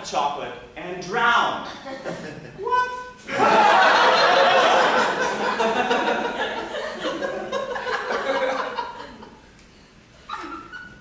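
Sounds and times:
audience laughing: 3.3s - 9.4s.

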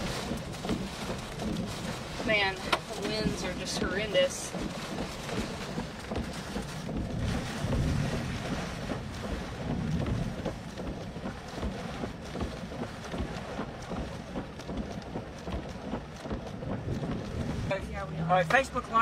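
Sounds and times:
strong gusting wind: 0.0s - 10.8s.

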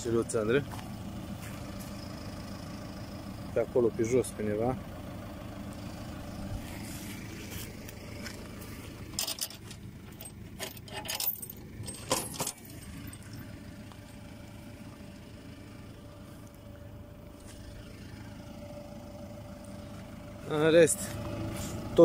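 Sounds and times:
tractor engine idling: 0.0s - 22.0s
light metallic jangling: 9.1s - 13.5s.

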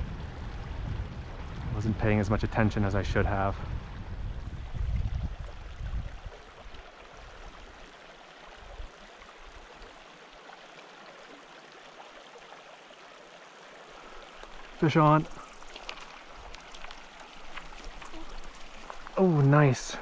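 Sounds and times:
low rumble on microphone: 0.0s - 6.9s
creek trickling: 0.0s - 20.0s.

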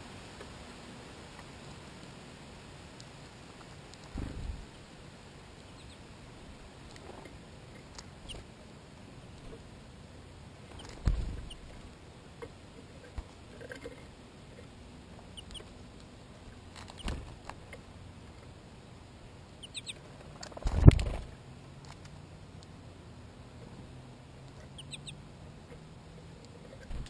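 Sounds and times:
birds pecking at feeder: 10.5s - 18.5s
birds thumping on feeder: 10.7s - 11.8s, 16.7s - 17.6s
high bird chirps: 19.6s - 20.0s, 24.7s - 25.2s.

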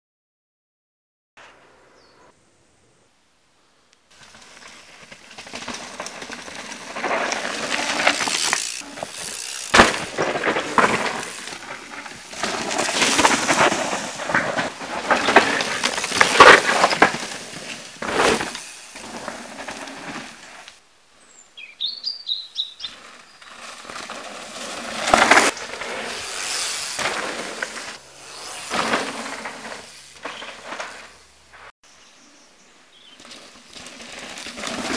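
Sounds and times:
bird chirping: 1.9s - 2.4s, 21.2s - 23.6s, 31.8s - 33.4s
bike tyres skidding on dirt: 4.1s - 31.7s, 32.9s - 34.9s
bike knocks and rattles: 4.3s - 20.2s.

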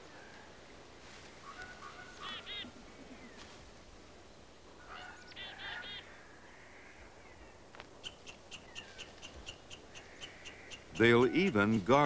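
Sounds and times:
rapid nasal animal calls: 1.4s - 3.1s, 4.8s - 6.1s
sharp animal ticks: 8.0s - 12.0s.

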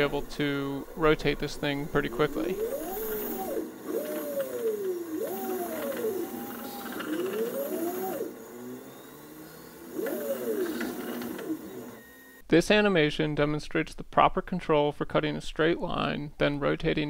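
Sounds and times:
stepper motors whining: 0.0s - 12.4s.

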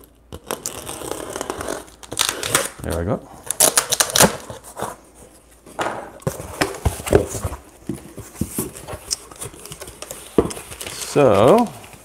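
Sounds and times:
cardboard scraping rustles: 6.2s - 12.0s.

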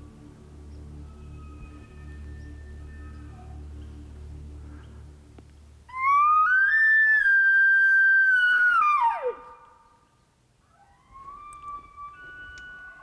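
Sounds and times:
elk call whistling note: 5.9s - 10.0s, 10.7s - 13.0s.

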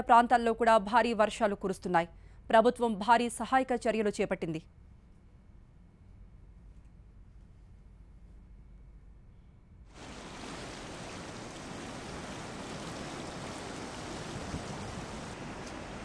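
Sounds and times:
faint low hum: 0.0s - 16.0s
steady rushing hiss: 9.9s - 16.0s.

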